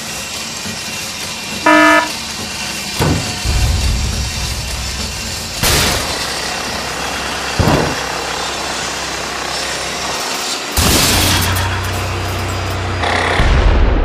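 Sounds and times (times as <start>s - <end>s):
steady loud rumble and hiss: 2.2s - 11.4s
sudden loud bangs: 3.0s - 8.3s.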